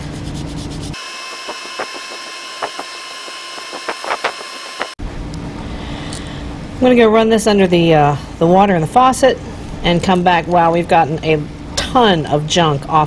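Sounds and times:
toothbrush scrubbing plastic: 0.0 - 2.8
steady hum with high whine: 0.0 - 13.0.

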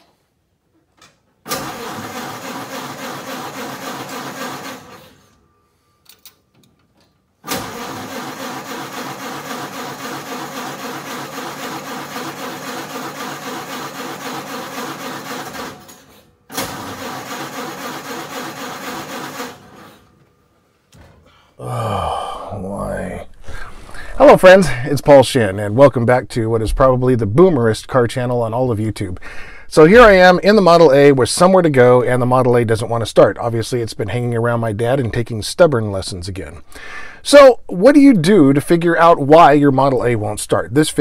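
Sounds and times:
engine cranking by starter: 1.4 - 5.4, 7.4 - 20.2.

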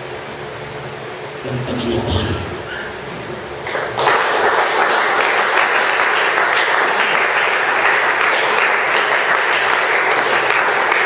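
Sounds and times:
congregation clapping: 3.6 - 11.0.

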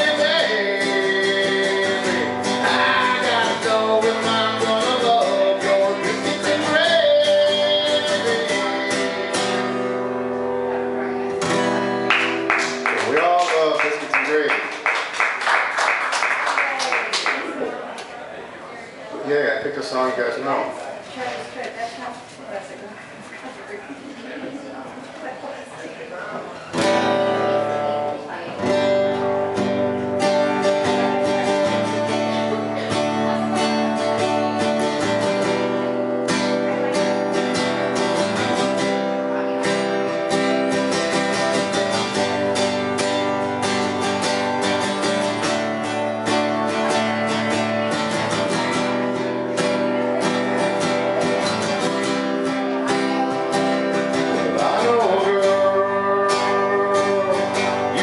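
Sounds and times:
acoustic guitar strumming chords: 0.0 - 14.6, 26.6 - 58.0.

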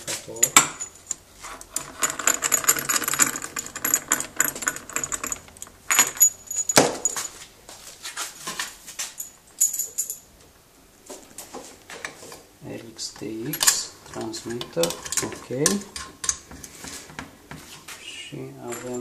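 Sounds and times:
metal tools clattering in drawer: 13.2 - 16.4, 18.6 - 19.0.

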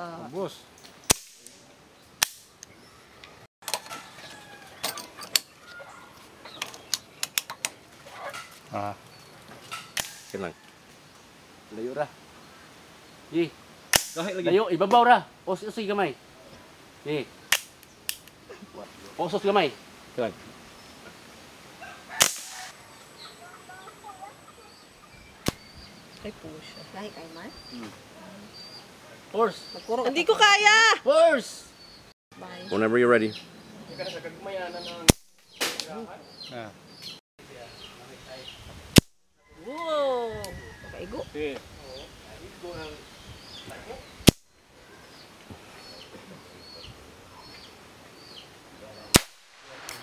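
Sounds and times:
pistol shot crack: 1.1 - 1.6, 13.9 - 14.3, 22.2 - 22.7, 35.1 - 35.9, 49.1 - 50.0
gunshot: 22.2 - 22.7, 49.1 - 50.0.

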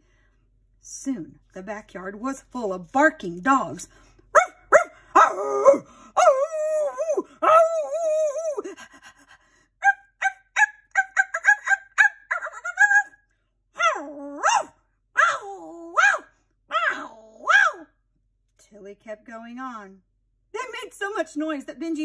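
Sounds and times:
dogs yipping: 4.4 - 8.0, 9.8 - 13.2, 13.8 - 17.9
dogs howling: 4.4 - 8.6, 13.8 - 17.9.

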